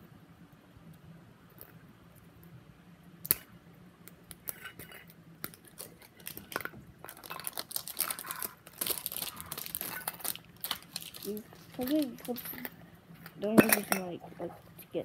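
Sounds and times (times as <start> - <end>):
foil wrapper crinkling: 5.5 - 12.7.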